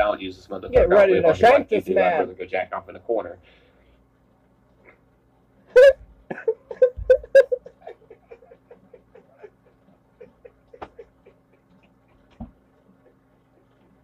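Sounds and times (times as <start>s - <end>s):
faint steady hum: 0.0s - 14.0s
man laughing hard: 5.8s - 12.4s.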